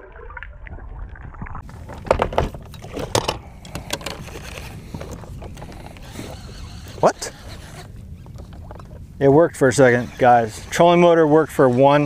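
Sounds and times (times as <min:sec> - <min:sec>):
muffled water noise: 0:00.0 - 0:12.0
clicks and knocks on a boat: 0:01.6 - 0:09.0.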